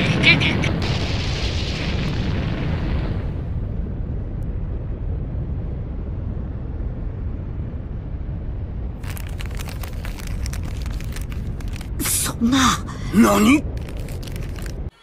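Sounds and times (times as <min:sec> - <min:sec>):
low explosion rumble: 0:00.1 - 0:12.0
sharp crackling: 0:09.0 - 0:14.9.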